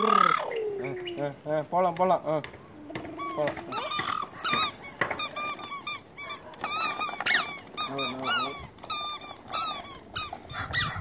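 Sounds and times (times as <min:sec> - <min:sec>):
walker cart wheels squeaking: 0:02.8 - 0:11.0.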